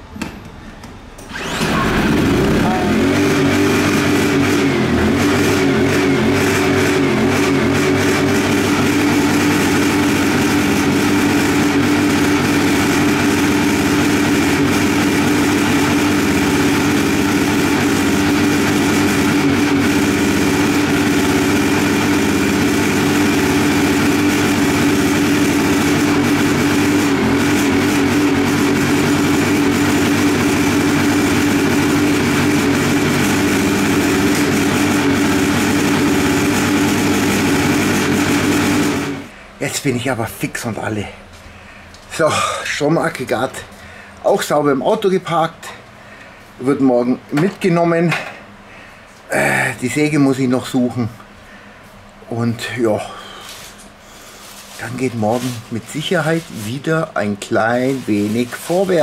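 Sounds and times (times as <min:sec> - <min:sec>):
generator engine humming: 0:01.1 - 0:40.0.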